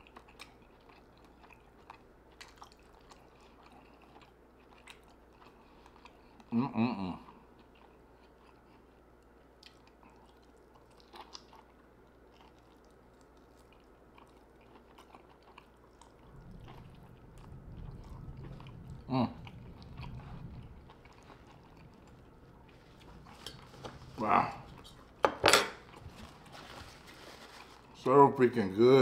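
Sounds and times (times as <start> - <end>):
close chewing and biting: 0.0 - 6.5, 7.2 - 25.2
low hum: 15.8 - 27.9.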